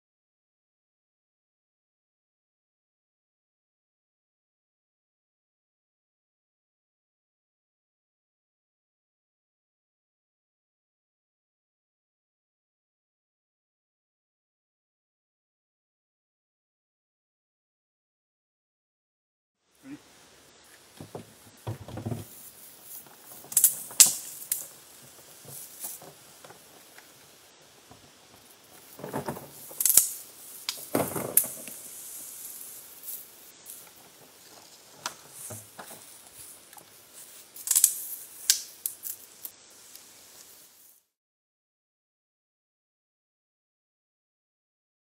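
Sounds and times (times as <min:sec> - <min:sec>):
water spurts hissing: 0:19.7 - 0:41.1
water gun plastic clicks: 0:28.8 - 0:31.8.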